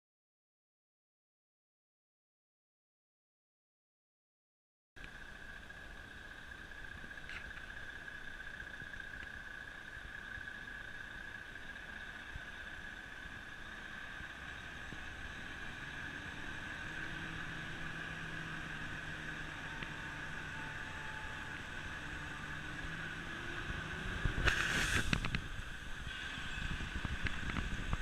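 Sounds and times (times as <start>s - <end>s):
lorry diesel engine running: 8.3s - 28.0s
loud burst of hissing: 24.2s - 27.2s.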